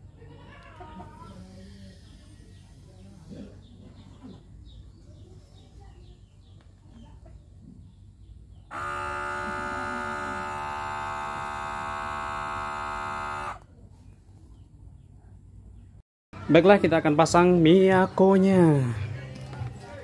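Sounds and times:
small pump motor whining: 8.7s - 13.6s.

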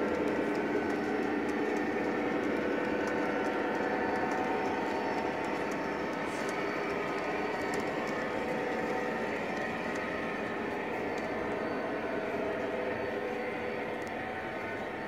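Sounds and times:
wheels rumbling on rails: 0.0s - 15.0s
faint irregular clicking: 0.1s - 10.5s.

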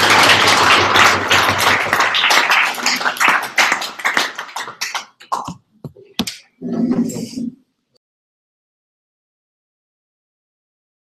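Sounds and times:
audience applause: 0.0s - 5.6s.

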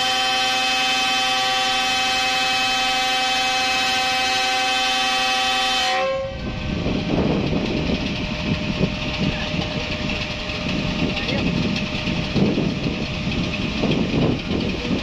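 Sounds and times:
locomotive air horn chord: 0.0s - 6.6s
diesel engine rough rumble: 6.3s - 15.0s.

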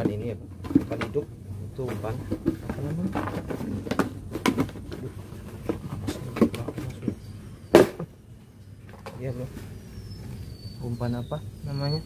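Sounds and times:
plastic bucket knocks and clatters: 0.0s - 1.2s, 1.8s - 8.1s.

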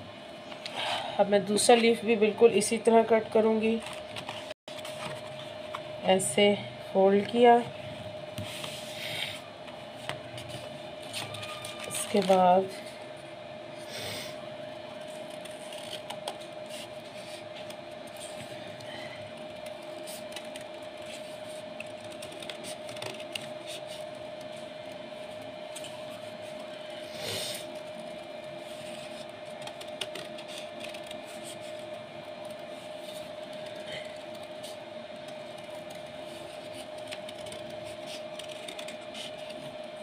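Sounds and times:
steady hum: 0.0s - 40.0s
scissors snipping paper: 21.8s - 23.9s, 29.6s - 31.4s, 36.7s - 39.6s
paper rustling: 35.7s - 39.8s.

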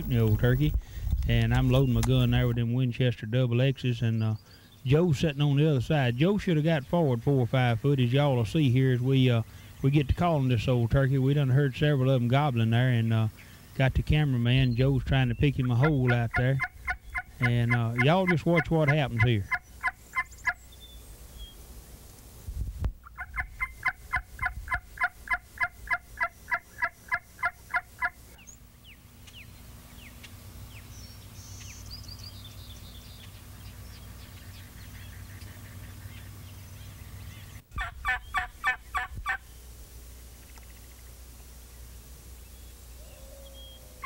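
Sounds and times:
small birds chirping: 0.0s - 21.7s, 26.2s - 39.7s, 40.3s - 44.0s
turkey call yelps: 15.7s - 20.6s, 23.0s - 28.2s, 37.3s - 39.4s.

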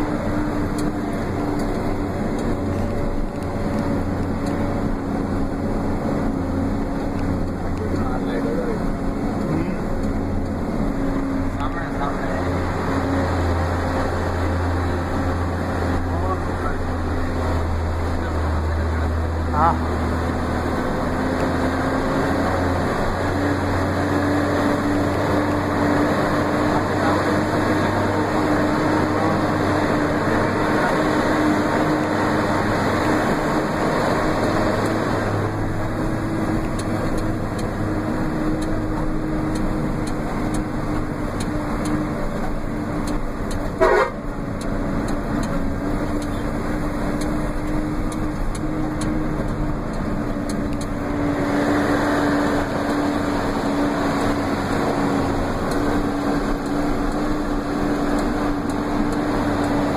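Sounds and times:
vehicle engine running with whine: 0.0s - 59.9s
short horn toot: 43.8s - 44.2s.

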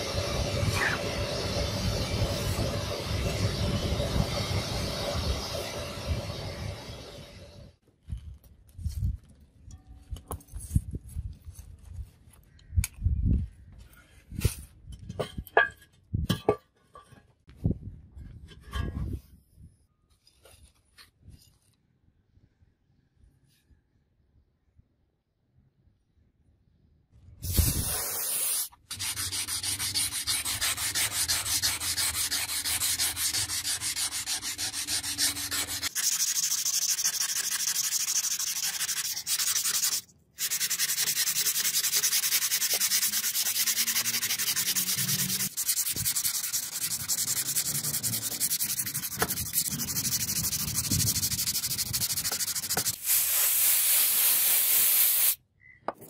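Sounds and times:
sandpaper scratching on steel blade: 27.6s - 55.4s.

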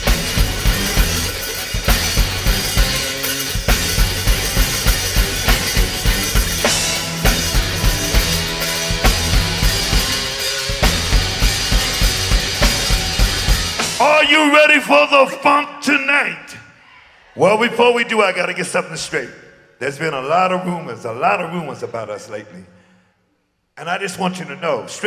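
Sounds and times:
electric bass line: 0.0s - 14.3s
drum kit beat: 0.0s - 14.5s.

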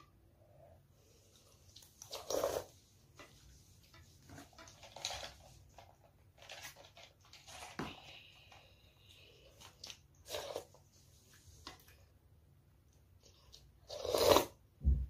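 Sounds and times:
slurping noodles: 1.4s - 2.8s, 9.7s - 10.9s, 13.8s - 14.6s.

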